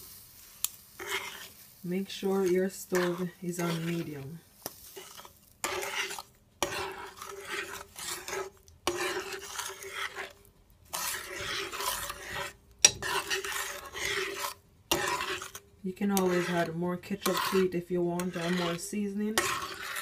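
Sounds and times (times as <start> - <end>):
metal spoon stirring in a pot: 0.6 - 20.0.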